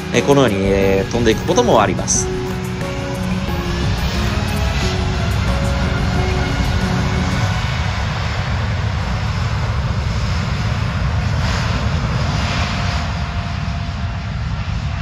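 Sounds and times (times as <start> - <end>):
jet engines rumbling with hiss: 0.0 - 15.0.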